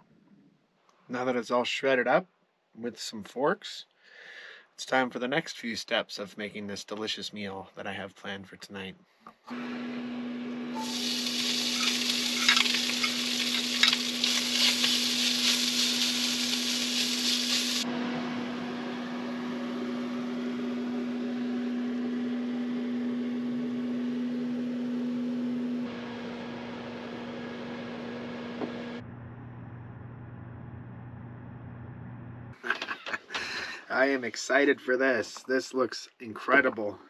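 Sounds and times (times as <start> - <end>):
steady low hum: 10.2 - 26.1, 29.0 - 32.6
meat sizzling in a skillet: 10.8 - 17.8.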